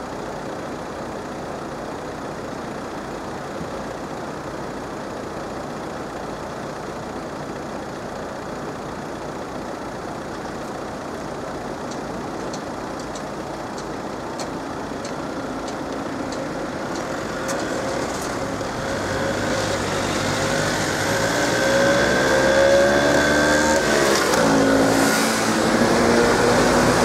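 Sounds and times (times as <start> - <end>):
car engines accelerating: 14.4 - 27.0.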